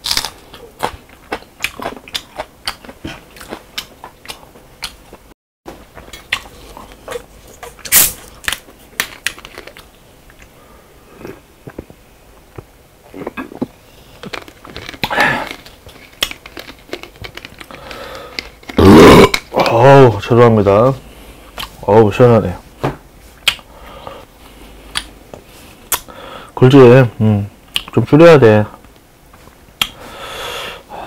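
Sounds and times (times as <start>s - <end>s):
person chewing food: 0.0s - 19.8s
soda bottle opening hiss: 7.9s - 8.2s
throat sound: 18.8s - 19.8s.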